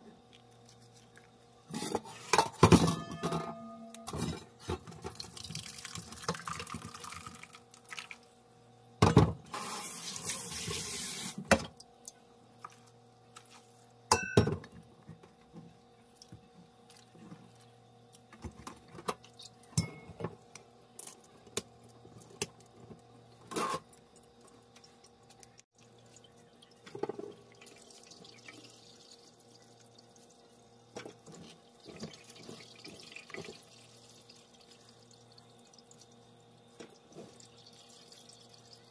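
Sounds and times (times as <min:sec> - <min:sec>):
water pouring through sieve: 0:05.0 - 0:08.2.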